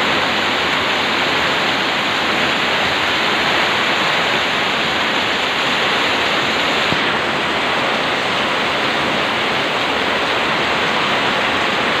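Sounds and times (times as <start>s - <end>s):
heavy rain pouring on roofs: 0.0s - 12.0s.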